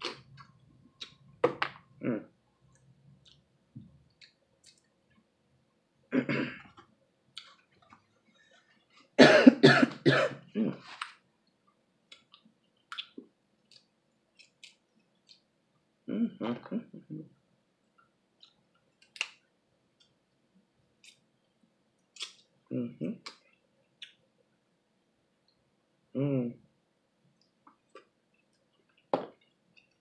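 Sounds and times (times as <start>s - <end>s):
woman coughing: 6.2s - 6.6s, 9.2s - 10.8s.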